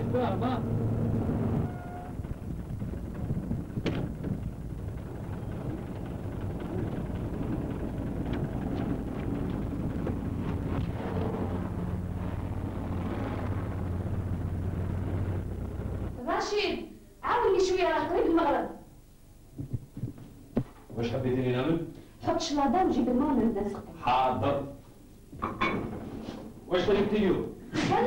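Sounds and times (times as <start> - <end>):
bus engine humming: 0.0 - 16.3.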